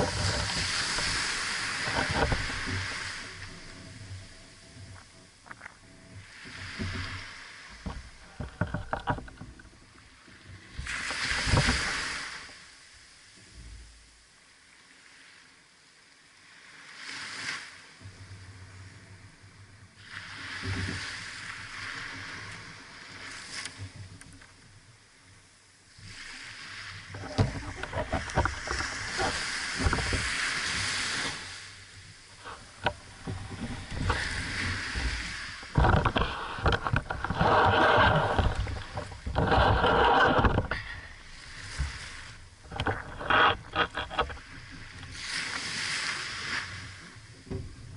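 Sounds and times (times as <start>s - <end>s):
small waves washing on sand: 0.0s - 47.9s
clicks and knocks: 7.8s - 9.7s, 32.4s - 41.1s.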